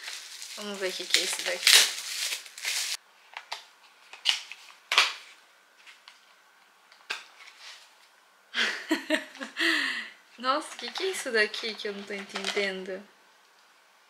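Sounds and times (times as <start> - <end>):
bubble wrap crinkling: 0.0 - 6.2
woman speaking: 0.6 - 1.9, 9.9 - 13.1.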